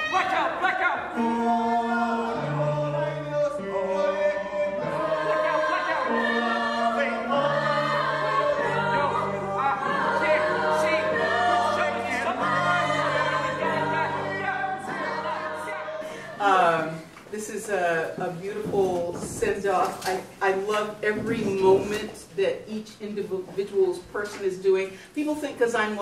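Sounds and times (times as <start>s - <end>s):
ensemble singing in chorus: 0.0s - 17.0s.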